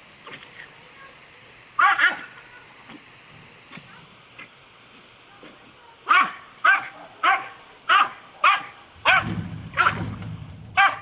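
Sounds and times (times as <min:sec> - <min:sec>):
dog barking: 0:01.8 - 0:02.3, 0:06.1 - 0:10.0, 0:10.8 - 0:11.0
low rumbling noise: 0:08.9 - 0:11.0.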